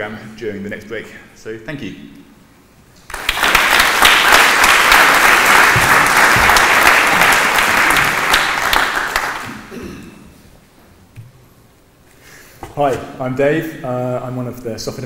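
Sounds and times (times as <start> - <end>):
audience applauding: 3.1 - 9.7.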